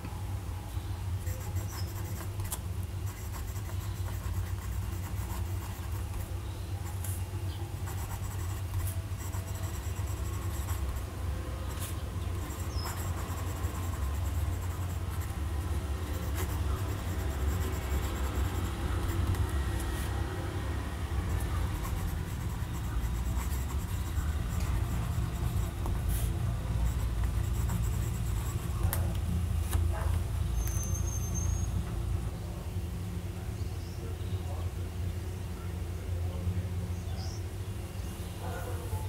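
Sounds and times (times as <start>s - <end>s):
steady low hum: 0.0s - 39.0s
pen nib scratching on paper: 1.2s - 7.1s, 7.8s - 20.2s, 21.2s - 29.1s.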